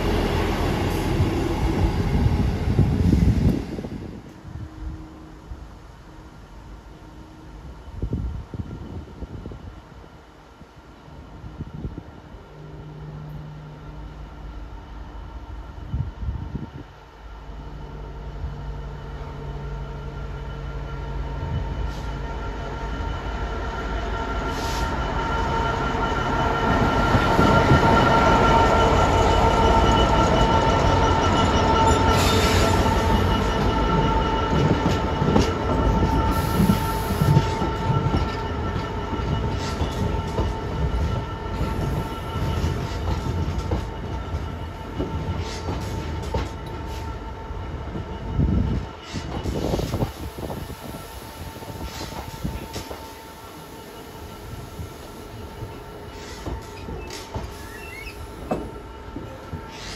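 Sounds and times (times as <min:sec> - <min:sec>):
diesel locomotive passing: 0:00.0 - 0:59.9.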